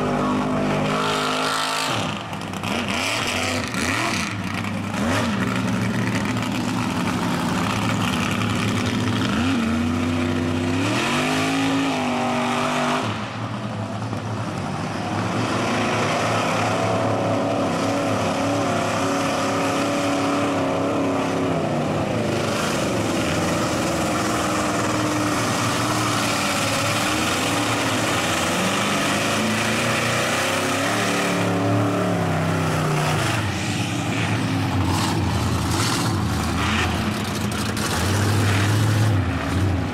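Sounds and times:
truck engines revving: 0.0s - 39.9s.

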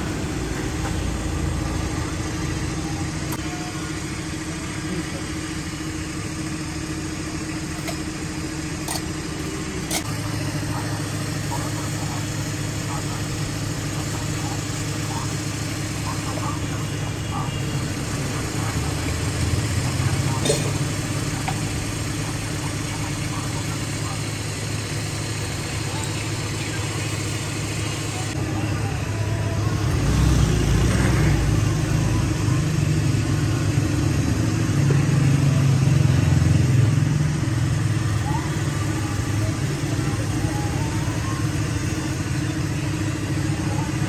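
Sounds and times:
engine idling: 0.0s - 44.0s
faint voices: 0.0s - 44.0s
street noise: 0.0s - 44.0s.

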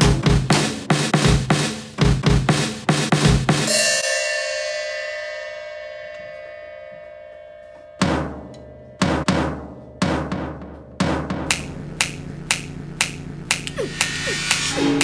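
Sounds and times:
hard drum hits: 0.0s - 3.7s, 8.0s - 11.9s
crash cymbal ringing: 3.7s - 9.2s.

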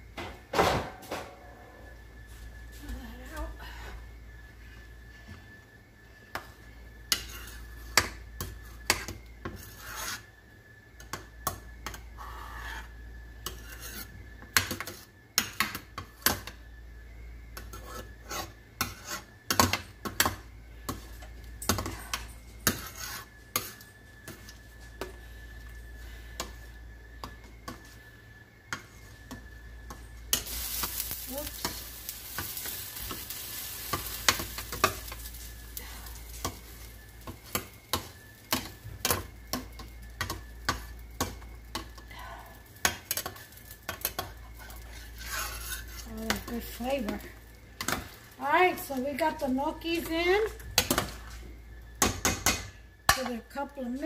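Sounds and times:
boiling pot hissing: 0.0s - 54.0s
metal ladle scraping pot: 44.9s - 46.1s.

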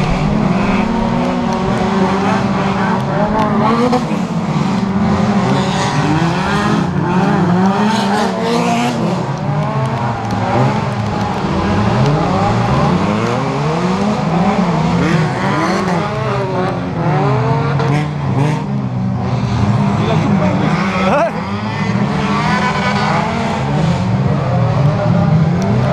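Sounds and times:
racing car engines revving: 0.0s - 25.9s.

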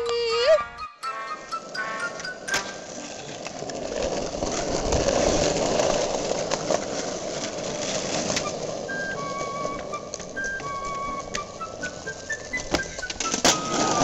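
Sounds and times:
skateboard wheels rolling on asphalt: 1.3s - 14.0s.

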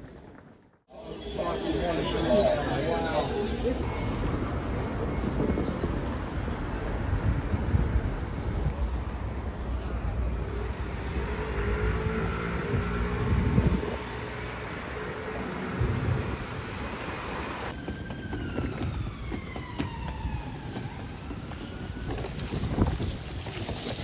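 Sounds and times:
street traffic rumble: 0.0s - 24.0s
siren wailing: 15.0s - 22.6s.

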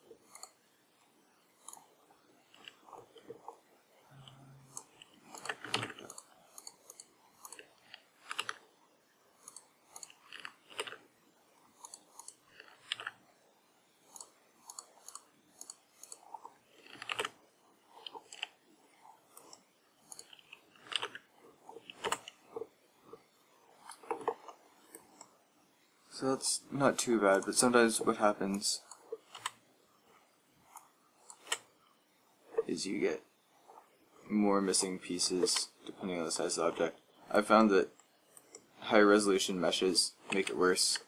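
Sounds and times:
mouse and keyboard clicking: 4.2s - 8.6s, 9.4s - 11.0s, 11.8s - 13.2s, 14.1s - 17.4s, 19.3s - 22.7s, 23.8s - 25.3s, 28.5s - 29.6s, 30.7s - 31.7s, 40.3s - 41.0s.

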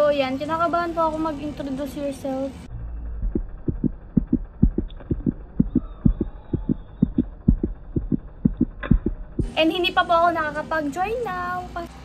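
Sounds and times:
fast heartbeat thumps: 3.2s - 9.5s.

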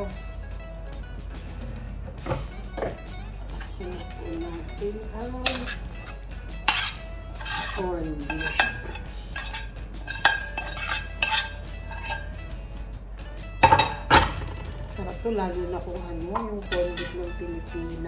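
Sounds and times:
metal spoon scraping frying pan: 3.5s - 12.4s.

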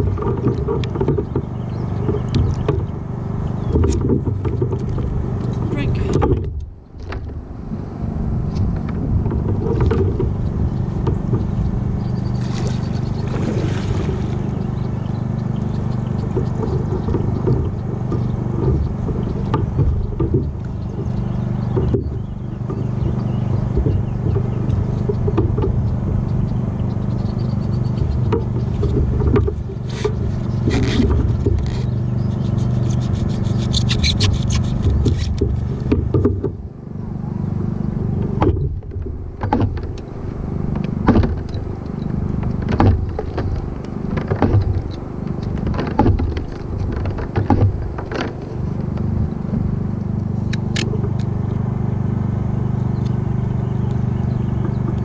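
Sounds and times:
steady low rumble: 0.0s - 55.0s
handling clicks knocks and scrapes: 28.0s - 36.6s, 38.2s - 51.4s.

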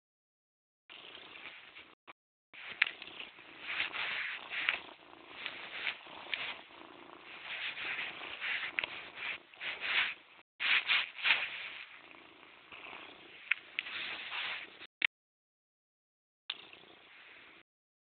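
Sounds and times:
cat purring: 0.9s - 2.0s, 2.6s - 14.9s.

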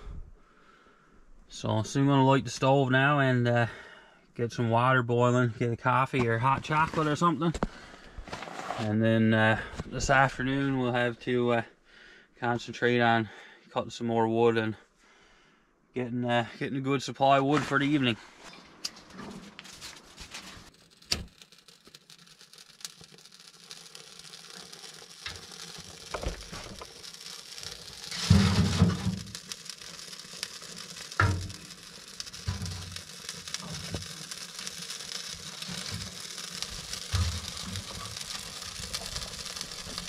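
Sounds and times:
wood fire crackling and hissing: 6.4s - 8.8s, 17.8s - 40.0s.

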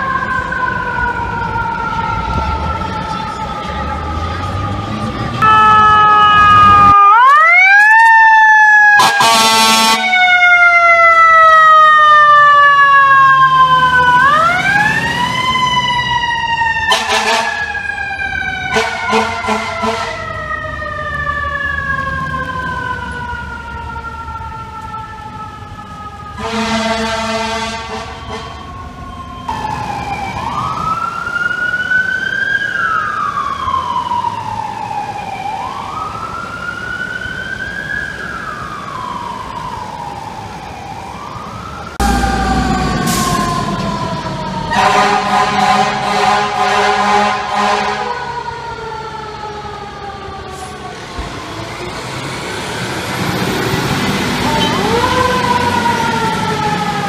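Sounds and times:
fire engine siren wailing: 0.0s - 57.0s
air horn blasts: 5.4s - 7.0s, 9.0s - 10.1s, 16.9s - 17.6s, 18.7s - 20.2s, 26.4s - 28.6s, 44.7s - 48.2s.

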